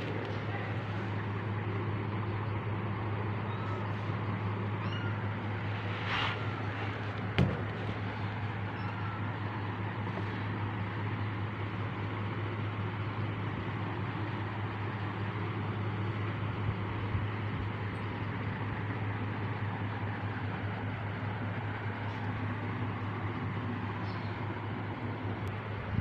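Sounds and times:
machine hum and hiss: 0.0 - 26.0
kitten meowing: 4.8 - 5.3.

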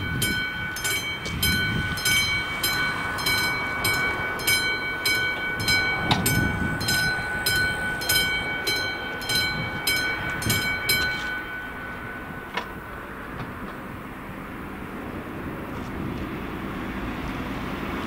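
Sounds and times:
level crossing bell ringing: 0.0 - 13.6.

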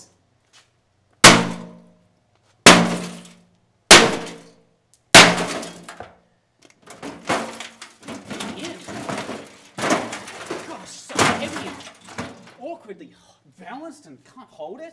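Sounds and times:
sledgehammer hitting sheet metal: 1.2 - 1.9, 2.6 - 6.0, 7.0 - 12.5
metal clattering: 2.7 - 4.5, 6.8 - 12.6.

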